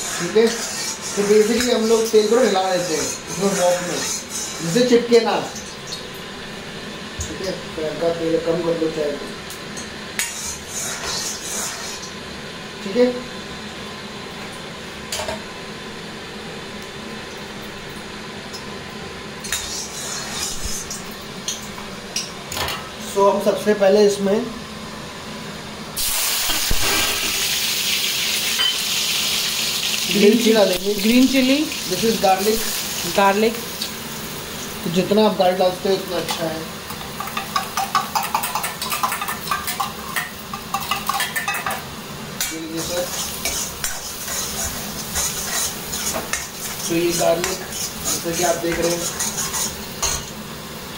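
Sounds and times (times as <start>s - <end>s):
ladle scraping a wok: 0.0s - 4.8s, 10.2s - 12.1s, 19.4s - 21.0s, 42.8s - 50.3s
garlic sizzling in oil: 19.4s - 22.1s, 26.0s - 50.9s.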